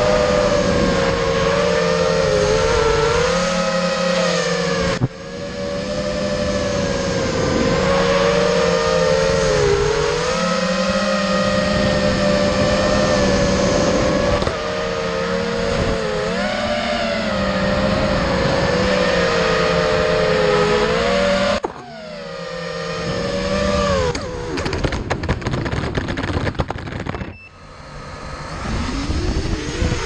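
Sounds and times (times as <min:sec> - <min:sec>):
drone propellers whining: 0:00.0 - 0:30.0
sharp clicks and knocks: 0:24.1 - 0:27.3.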